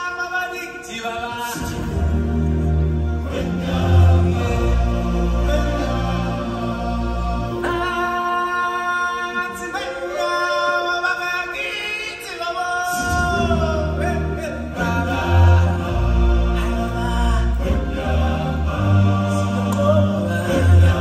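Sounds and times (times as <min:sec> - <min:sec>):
choir-like chanting: 0:01.4 - 0:08.3, 0:12.9 - 0:21.0.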